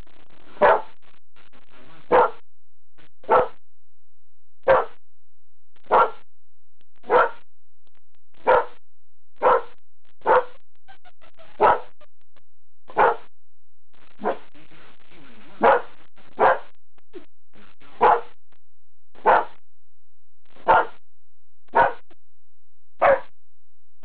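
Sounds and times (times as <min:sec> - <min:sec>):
dog barking: 0:00.6 - 0:00.9, 0:02.1 - 0:02.4, 0:03.2 - 0:03.6, 0:04.6 - 0:05.0, 0:05.9 - 0:06.2, 0:07.0 - 0:07.4, 0:08.4 - 0:08.8, 0:09.4 - 0:10.6, 0:11.6 - 0:12.0, 0:12.9 - 0:13.3, 0:14.2 - 0:14.5, 0:15.6 - 0:16.7, 0:18.0 - 0:18.4, 0:19.2 - 0:19.6, 0:20.6 - 0:21.0, 0:21.7 - 0:22.0, 0:23.0 - 0:23.3.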